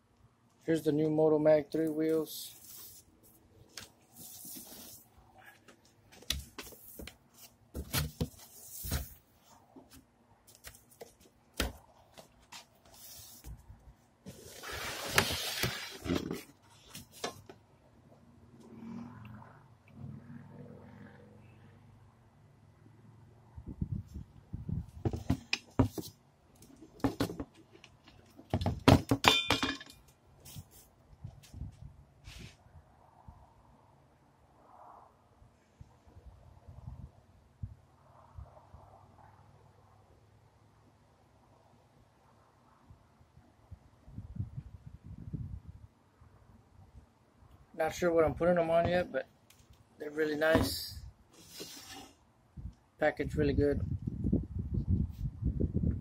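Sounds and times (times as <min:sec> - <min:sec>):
cardboard rustling and scraping: 0:02.4 - 0:17.5, 0:25.0 - 0:29.2, 0:50.4 - 0:52.2.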